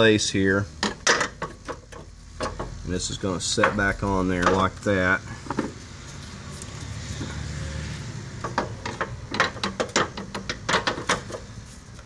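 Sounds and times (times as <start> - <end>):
metal bracket clicking and knocking: 0.8 - 2.8, 8.4 - 11.5.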